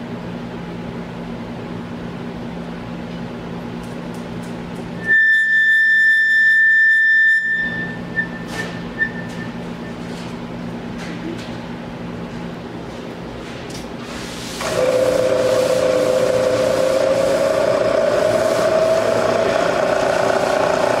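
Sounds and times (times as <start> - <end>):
high whistling tone: 5.0 - 9.6
milling machine hum: 14.6 - 21.0.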